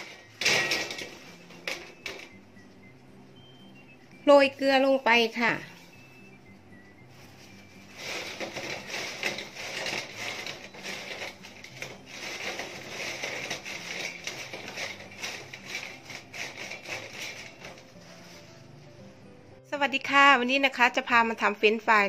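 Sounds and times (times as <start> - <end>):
paper towels rustling and crumpling: 12.0 - 18.7.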